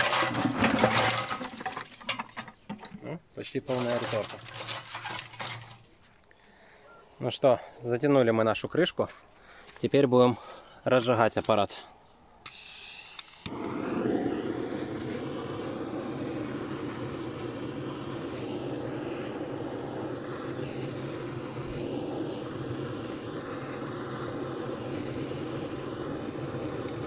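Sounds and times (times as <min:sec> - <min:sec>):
blowtorch hissing: 0:03.7 - 0:05.7, 0:12.5 - 0:27.0.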